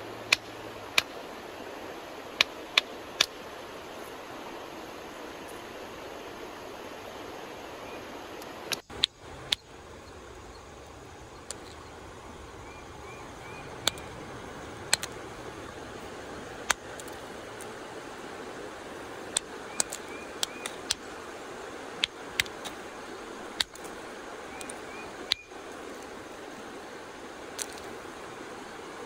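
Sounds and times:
steady background rush: 8.7 - 21.0
stone striking stone clicks: 13.8 - 14.1, 14.9 - 15.2, 16.6 - 17.2, 19.3 - 21.0, 23.6 - 23.9, 27.6 - 27.9.

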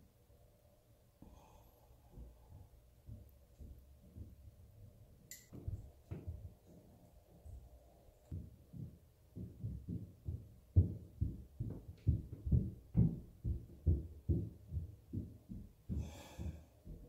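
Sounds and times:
dull thumping through ceiling: 2.0 - 4.9, 5.5 - 6.7, 7.5 - 17.0.

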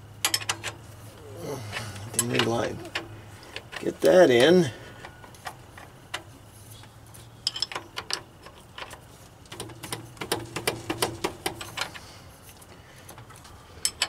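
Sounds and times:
hand wrench clicking: 13.1 - 14.0.

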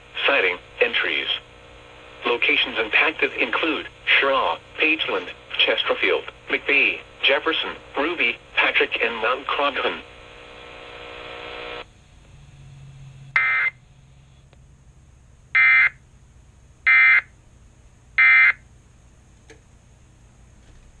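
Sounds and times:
steady buzzing tone: 0.0 - 20.1
screechy data tone bursts: 13.4 - 13.8, 15.6 - 16.0, 16.9 - 17.3, 18.2 - 18.6.

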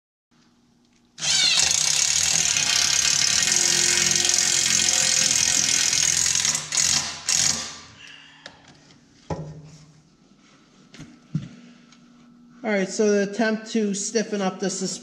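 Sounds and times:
grinder grinding metal: 1.2 - 7.7.

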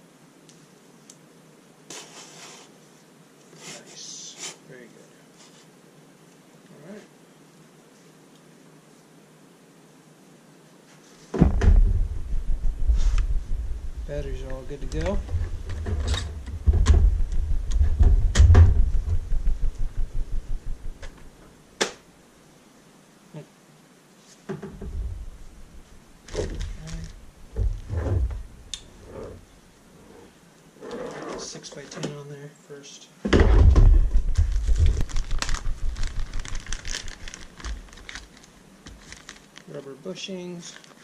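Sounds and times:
low thump against table: 11.4 - 21.3, 33.4 - 36.2
low rumble: 11.4 - 21.4, 24.8 - 29.1, 33.6 - 38.0
plastic bag crinkling: 26.2 - 27.2, 34.1 - 39.8, 40.6 - 41.0.

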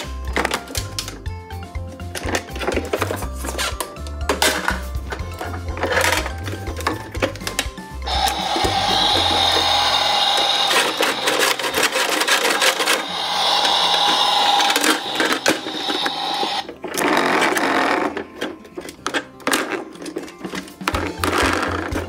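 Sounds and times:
plastic toy parts clicking and rattling: 0.0 - 1.4, 2.0 - 22.0
plastic scraping: 2.2 - 22.0
toy electronic steady tone: 8.1 - 16.7.

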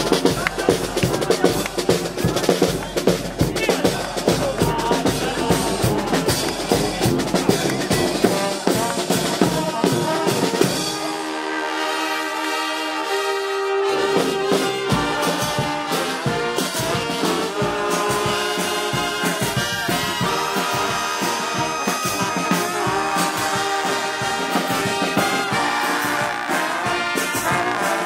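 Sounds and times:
bass drum: 0.0 - 10.9
snare drum: 0.0 - 11.2, 13.8 - 28.0
brass band playing: 0.0 - 28.0.

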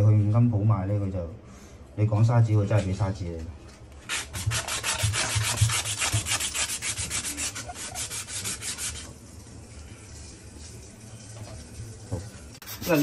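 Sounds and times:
sanding cloth rubbing on pipe: 4.1 - 9.1, 12.6 - 13.0.

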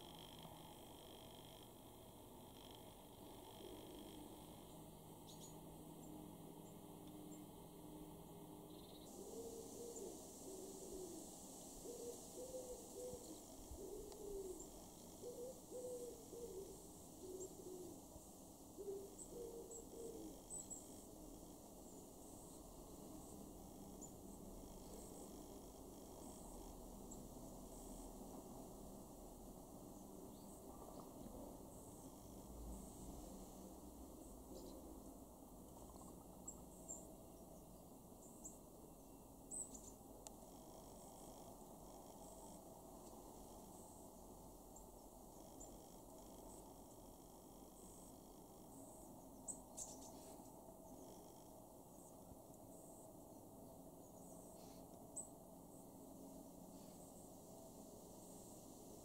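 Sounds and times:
low steady background hiss: 0.0 - 59.0
pigeon cooing: 9.1 - 11.2, 11.8 - 18.0, 18.8 - 20.4
small birds chipping: 47.6 - 51.3.

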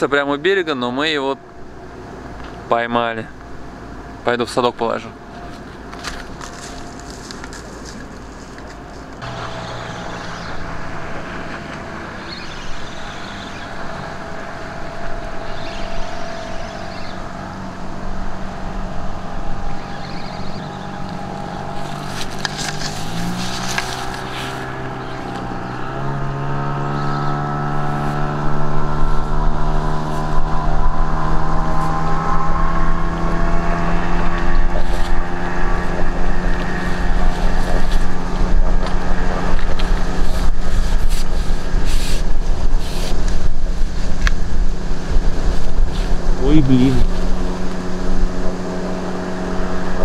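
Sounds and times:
motorboat engine running: 0.7 - 50.0.

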